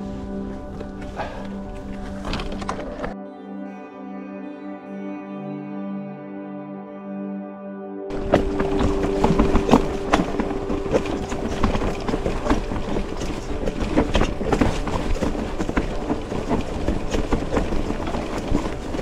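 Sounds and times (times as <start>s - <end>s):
tyre and wind noise: 0.0s - 3.2s, 8.1s - 19.0s
bike rattling over rocks: 0.6s - 3.2s, 8.1s - 19.0s
steady hum: 8.1s - 19.0s.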